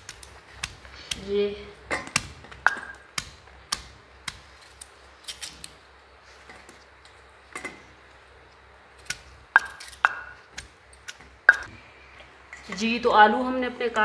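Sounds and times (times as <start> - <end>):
knife cutting raw potatoes: 0.0 - 5.8, 9.0 - 11.7.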